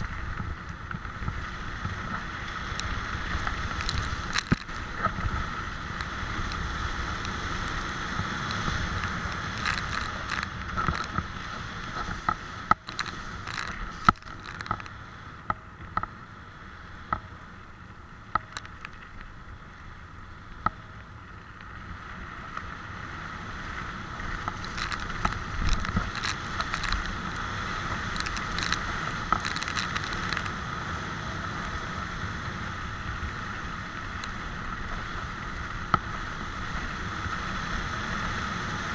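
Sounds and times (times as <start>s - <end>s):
bike knocking and rattling: 0.0s - 16.2s, 18.2s - 19.1s, 24.2s - 30.8s
bicycle tyres rolling on gravel: 0.0s - 38.9s.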